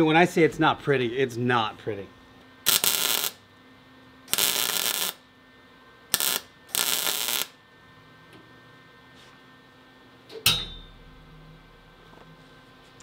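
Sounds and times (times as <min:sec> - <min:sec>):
welding arc crackle: 0:02.6 - 0:03.4, 0:04.3 - 0:05.2, 0:06.1 - 0:07.6.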